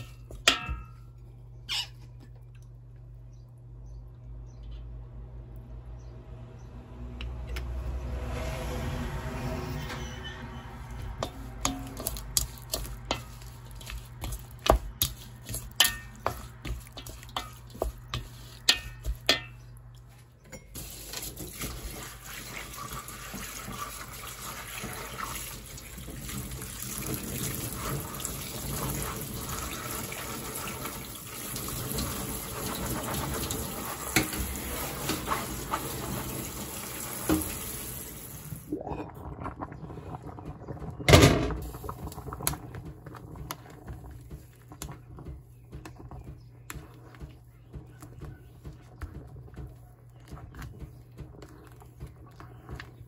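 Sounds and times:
spoon scraping steel bowl: 0:09.6 - 0:19.8
tap water running into sink: 0:20.8 - 0:38.7.

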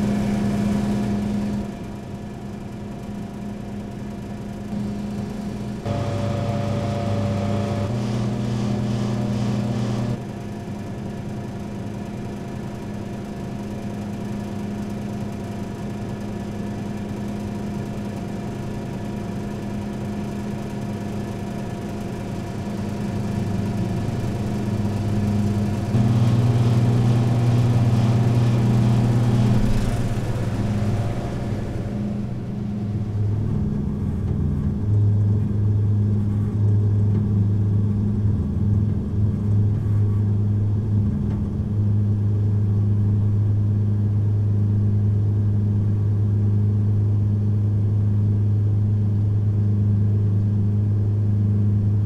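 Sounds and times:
vending machines humming: 0:00.0 - 0:20.2, 0:21.6 - 0:45.0.

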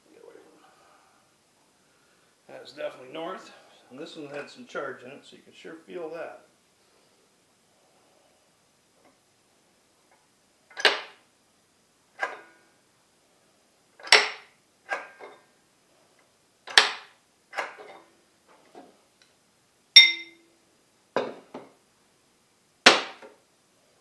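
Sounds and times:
metal magnets clacking on steel: 0:20.0 - 0:20.4
ringing metal clang: 0:20.0 - 0:20.5.

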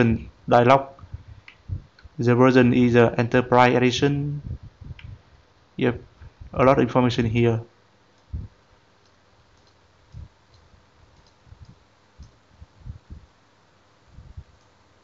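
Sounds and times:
computer mouse clicks: 0:09.0 - 0:12.4.

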